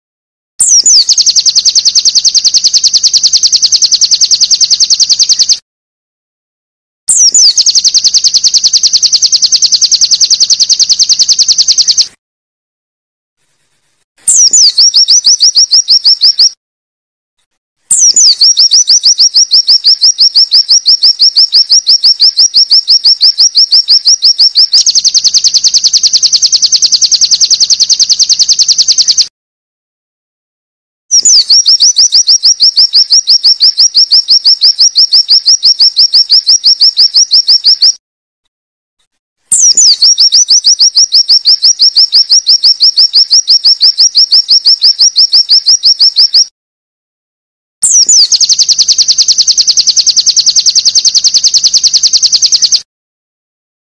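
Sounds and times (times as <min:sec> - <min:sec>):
bird song high repeated notes: 0:00.6 - 0:05.6, 0:07.1 - 0:12.2, 0:14.3 - 0:16.6, 0:17.9 - 0:29.3, 0:31.1 - 0:38.0, 0:39.5 - 0:46.5, 0:47.8 - 0:52.9
buzzy bird trill: 0:00.6 - 0:05.6, 0:07.1 - 0:12.2, 0:14.3 - 0:16.6, 0:17.9 - 0:29.3, 0:31.1 - 0:38.0, 0:39.5 - 0:46.5, 0:47.8 - 0:52.8.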